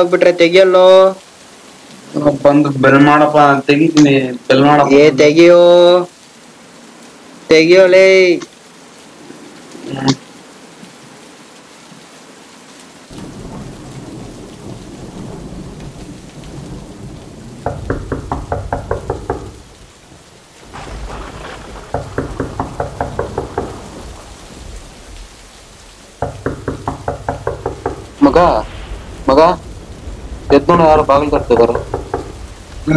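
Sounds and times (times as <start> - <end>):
heavy rain: 0.0 - 32.9
low thunder rumble: 13.1 - 32.9
rapid knocking on a door: 17.6 - 19.6, 21.8 - 23.9, 26.2 - 28.2, 31.4 - 32.4.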